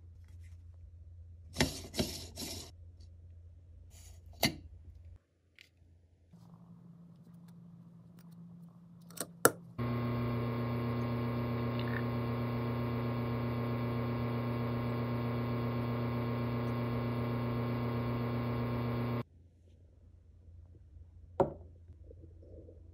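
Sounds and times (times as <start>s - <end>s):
espresso machine pump running: 9.8s - 19.2s.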